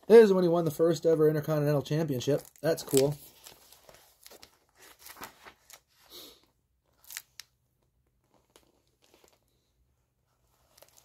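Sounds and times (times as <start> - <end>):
book pages being turned: 2.3 - 6.1, 6.9 - 7.5, 8.2 - 9.7, 10.3 - 11.0.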